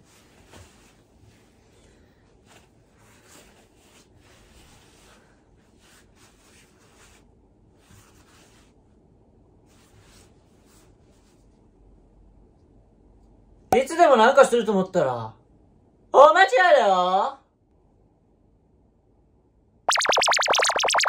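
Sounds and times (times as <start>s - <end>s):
faint soft rustling: 0.0s - 9.0s.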